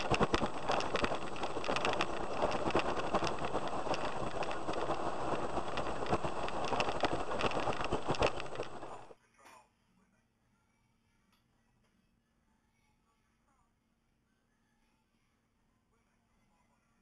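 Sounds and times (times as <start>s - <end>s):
rain drops striking vehicle body: 0.0s - 9.1s.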